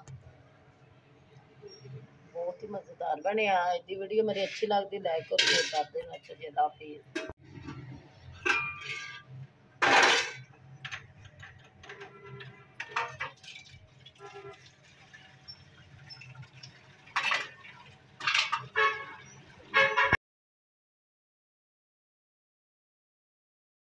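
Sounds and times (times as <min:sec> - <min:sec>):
household noises: 0:04.4 - 0:06.4, 0:07.2 - 0:19.2.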